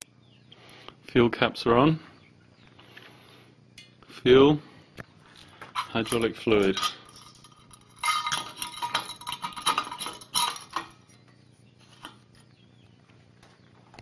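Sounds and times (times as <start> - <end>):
metal clinking and rattling: 5.4 - 12.3.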